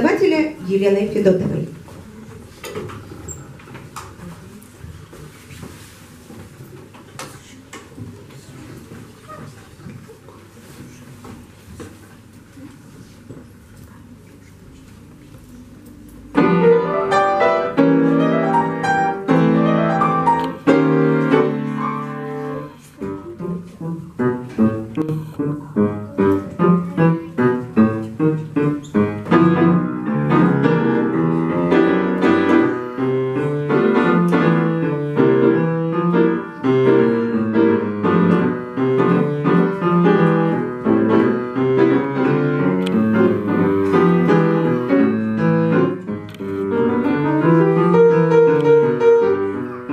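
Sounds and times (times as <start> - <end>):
solo piano piece: 16.2 - 49.9.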